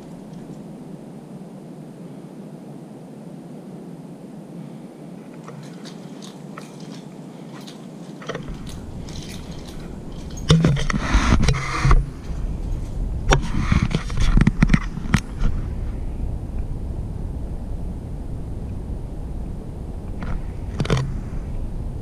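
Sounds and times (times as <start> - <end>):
low rumble: 5.4 - 22.0.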